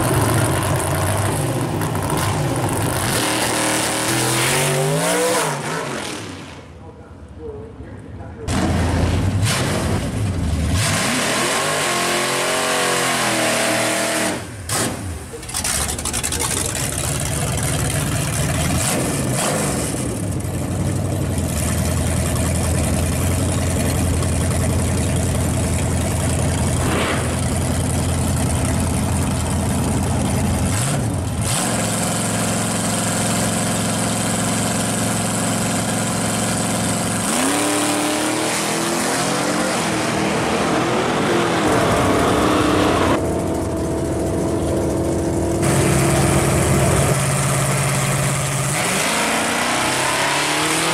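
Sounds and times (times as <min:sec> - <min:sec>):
engine revving: 0:00.0 - 0:06.6, 0:08.5 - 0:20.4, 0:24.8 - 0:50.9
engine idling: 0:14.6 - 0:19.0, 0:19.9 - 0:37.2, 0:43.2 - 0:48.8.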